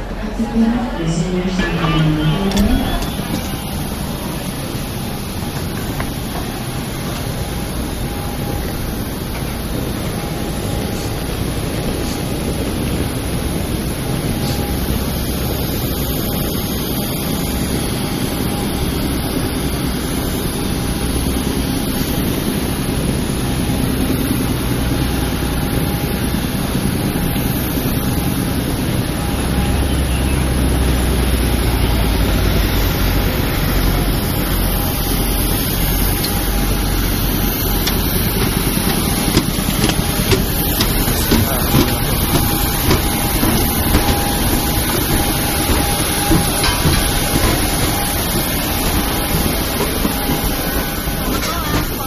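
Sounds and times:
jet airliners rushing: 0:00.0 - 0:52.0
steady jet whine: 0:00.0 - 0:52.0
footfalls on metal stairs: 0:37.5 - 0:52.0.

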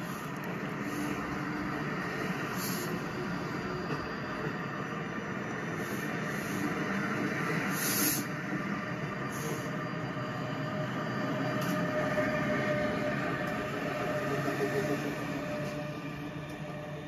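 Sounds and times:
toy train whirring and rattling: 0:07.6 - 0:08.4
brief hisses: 0:07.7 - 0:08.3.

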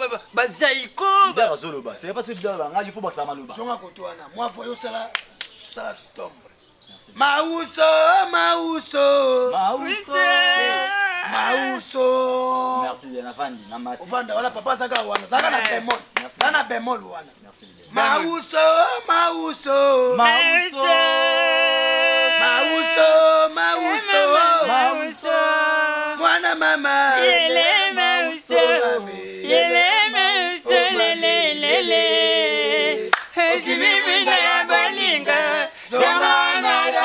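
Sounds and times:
voices singing unaccompanied: 0:06.9 - 0:16.7, 0:17.5 - 0:37.0.

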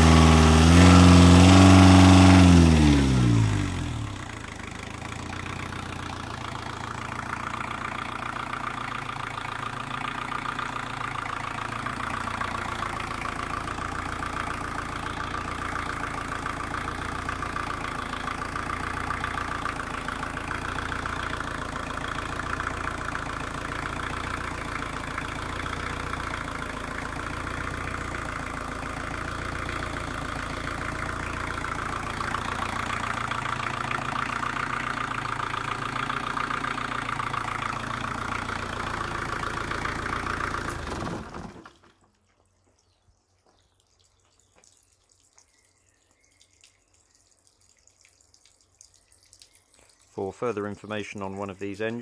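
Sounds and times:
diesel engine idling: 0:00.0 - 0:42.0
faint small ticks: 0:42.2 - 0:50.2.

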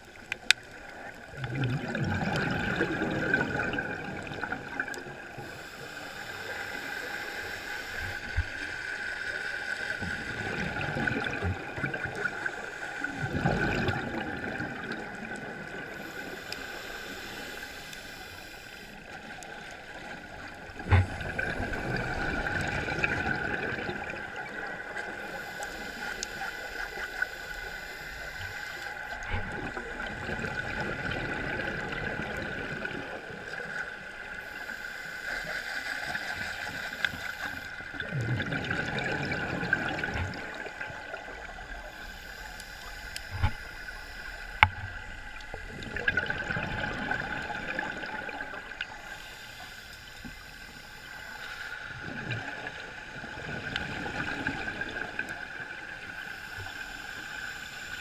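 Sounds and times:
underwater water noise: 0:00.0 - 0:58.0
high hiss: 0:05.4 - 0:10.0, 0:15.9 - 0:19.6, 0:25.2 - 0:29.2, 0:34.4 - 0:37.8, 0:40.6 - 0:45.7, 0:48.8 - 0:51.9, 0:56.0 - 0:58.0.

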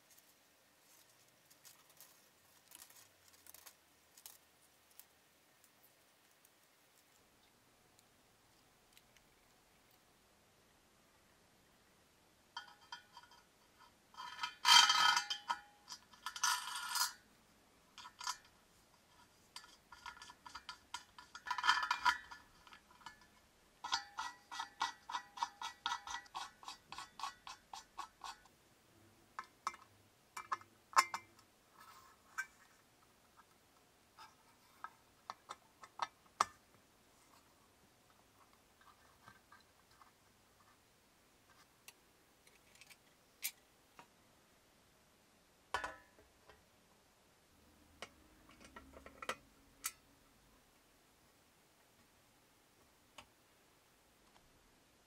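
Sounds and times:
metal clinking on copper: 0:12.6 - 0:13.5, 0:14.2 - 0:17.2, 0:29.4 - 0:31.4.

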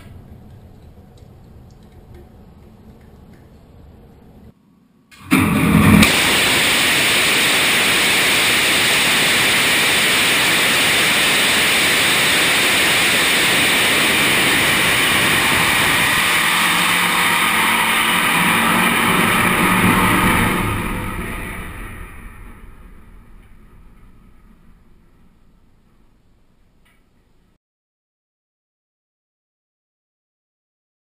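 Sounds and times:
low steady hum: 0:00.0 - 0:27.6
rocket motor exhaust roaring: 0:05.2 - 0:26.8.

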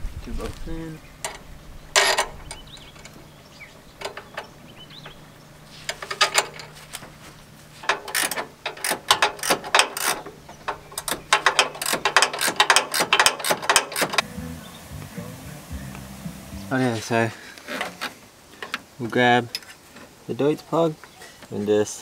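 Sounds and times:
ratchet wrench clicking: 0:07.8 - 0:14.2.

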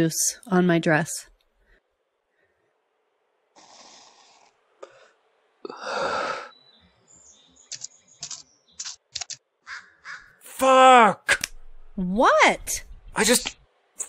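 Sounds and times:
soft hissing inhale: 0:03.6 - 0:06.5.

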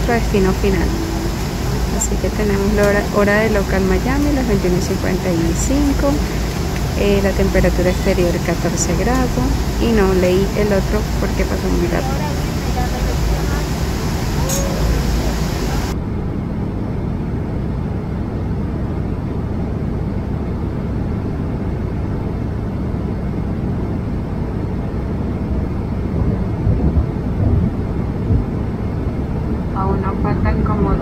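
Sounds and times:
hissy cabin sound: 0:00.0 - 0:16.0
jet engine and air rumble: 0:00.0 - 0:31.0.

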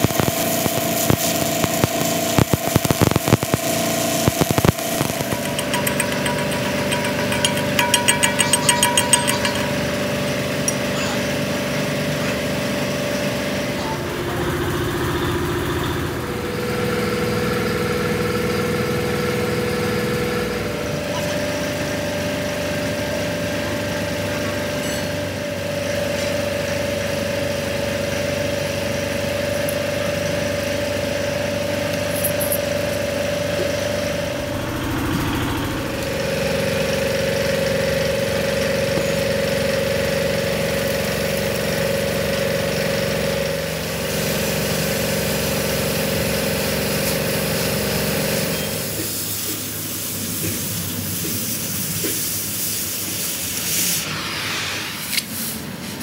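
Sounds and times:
rapid clicking: 0:04.5 - 0:10.0.

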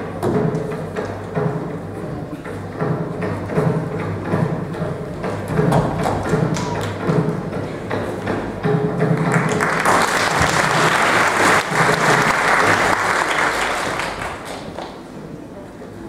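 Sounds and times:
audience applauding: 0:09.2 - 0:15.0.

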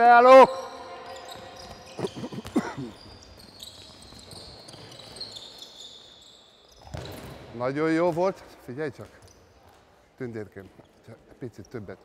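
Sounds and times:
shoes squeaking: 0:00.6 - 0:07.5
ball bouncing on wooden floor: 0:06.8 - 0:07.3.

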